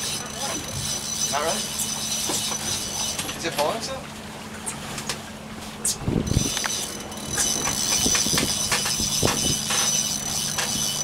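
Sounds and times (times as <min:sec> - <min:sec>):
fishing reel drag whining: 0:00.0 - 0:03.4, 0:06.2 - 0:11.0
outboard motor hum: 0:00.0 - 0:11.0.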